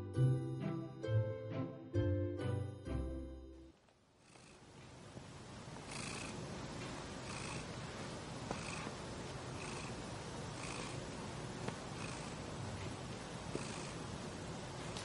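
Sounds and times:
cat purring: 0:04.2 - 0:15.0.

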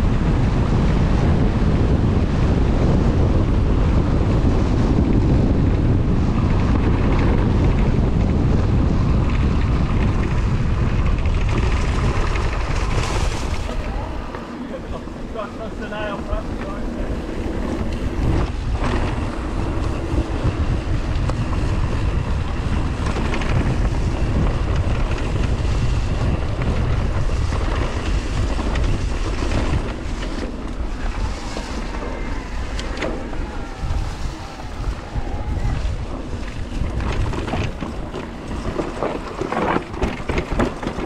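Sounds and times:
bike tyre noise: 0:00.0 - 0:41.0
wind rumbling on microphone: 0:00.0 - 0:41.0
knocks and rattles: 0:35.8 - 0:41.0.

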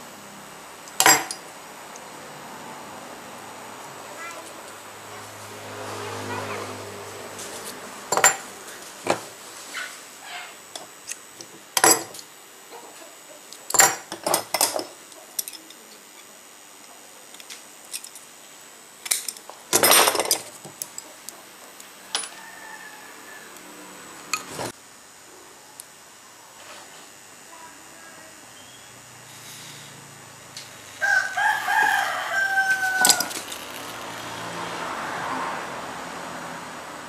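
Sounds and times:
metal strips clinking: 0:32.7 - 0:34.3.

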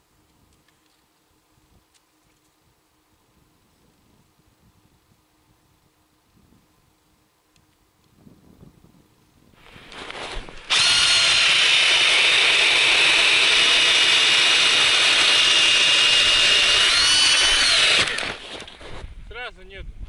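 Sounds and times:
auger cutters grinding ice: 0:09.6 - 0:19.0
power drill motor whine: 0:09.6 - 0:19.0.

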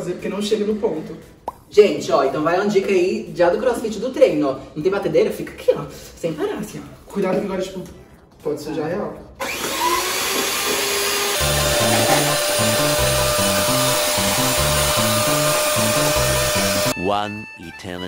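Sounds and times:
electric hand mixer whipping: 0:09.4 - 0:17.0
background music with bass line: 0:11.4 - 0:18.0.

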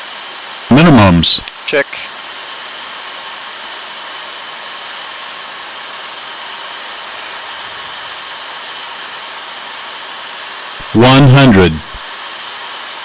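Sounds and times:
airflow and engine noise: 0:00.0 - 0:13.0.

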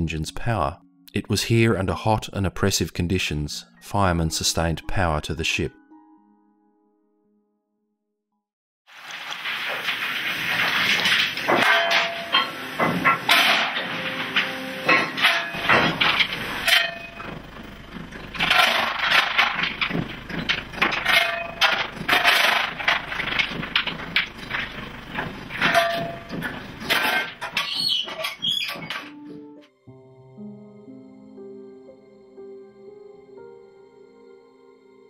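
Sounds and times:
metal tools scraping and clanging: 0:09.2 - 0:29.2.

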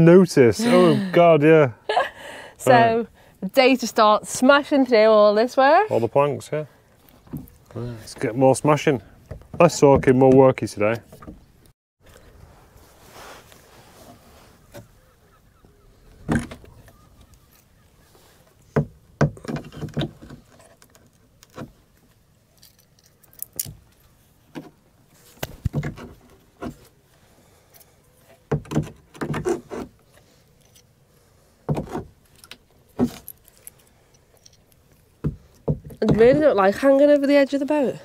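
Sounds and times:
hand tools knocking on wood: 0:35.2 - 0:36.5.

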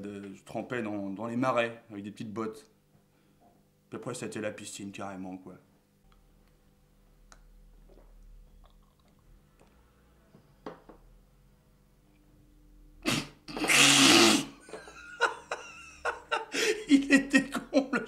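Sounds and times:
man laughing loudly: 0:14.6 - 0:18.0.

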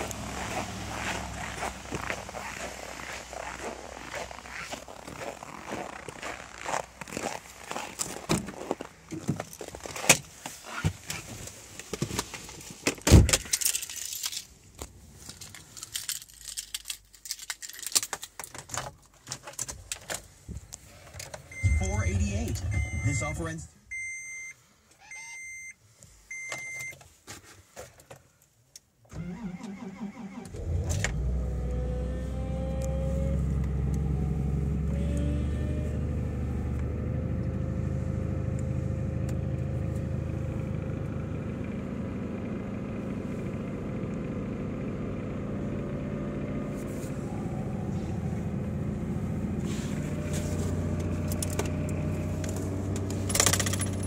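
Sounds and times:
car engine idling: 0:00.0 - 0:08.2, 0:21.4 - 0:23.9, 0:30.6 - 0:54.0
car engine cranking and starting: 0:00.0 - 0:24.2, 0:29.0 - 0:54.0
short electronic beeps: 0:21.5 - 0:26.9.

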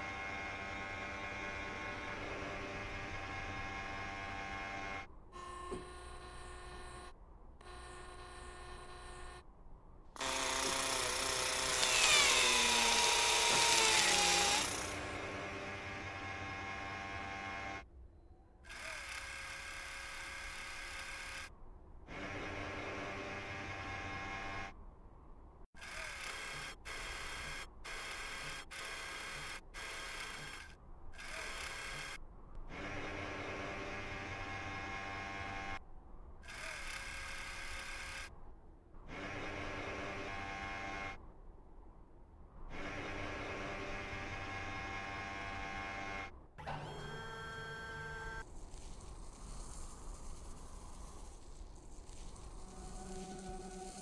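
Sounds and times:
robotic motors whirring: 0:10.2 - 0:15.2, 0:25.8 - 0:32.2.

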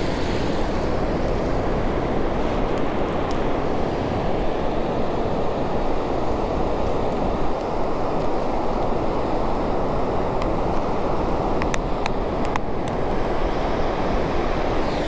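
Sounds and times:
ocean surf breaking: 0:00.0 - 0:06.6
wind rumbling on microphone: 0:00.0 - 0:15.0.

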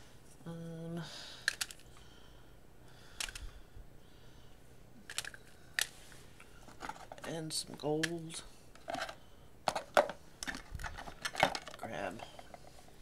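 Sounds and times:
crayons clicking together: 0:01.4 - 0:01.8.

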